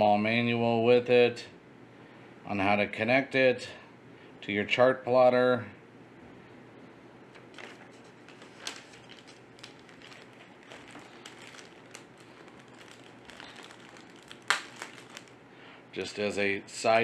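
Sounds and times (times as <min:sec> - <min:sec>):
paper sheet rustling: 0:07.4 - 0:15.3
plastic bag crinkling: 0:07.4 - 0:15.4.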